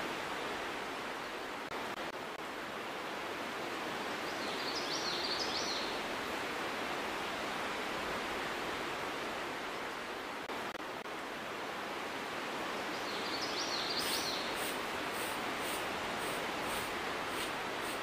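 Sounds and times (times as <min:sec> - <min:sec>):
outdoor background noise: 0:00.0 - 0:18.0
broom sweeping dirt: 0:14.0 - 0:18.0.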